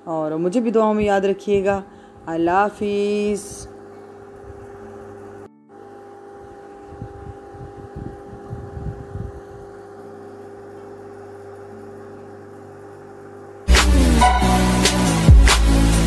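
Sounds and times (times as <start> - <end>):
appliance motor humming: 1.5 - 13.7.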